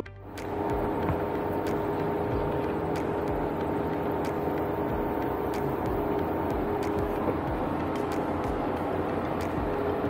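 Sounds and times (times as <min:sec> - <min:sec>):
vehicle engine droning: 0:00.0 - 0:10.0.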